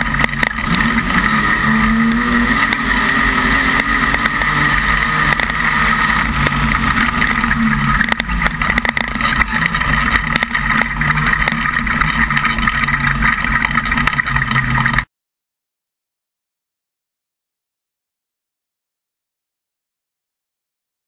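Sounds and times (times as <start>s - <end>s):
car engine running: 0.0s - 15.1s.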